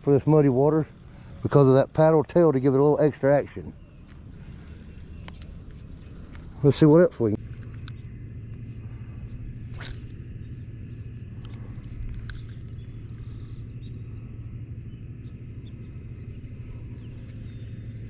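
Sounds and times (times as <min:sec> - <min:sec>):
steady low rumble: 0:00.0 - 0:18.0
fishing rod swish: 0:09.7 - 0:10.2.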